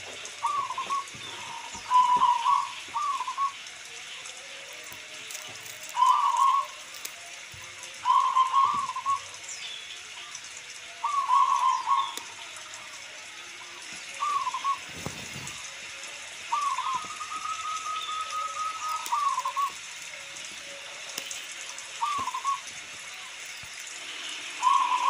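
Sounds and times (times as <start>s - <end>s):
rain hiss: 0.0s - 25.0s
dove cooing: 0.3s - 3.7s, 5.3s - 6.8s, 7.9s - 9.4s, 11.0s - 12.3s, 14.2s - 19.9s, 21.8s - 22.8s, 24.6s - 25.0s.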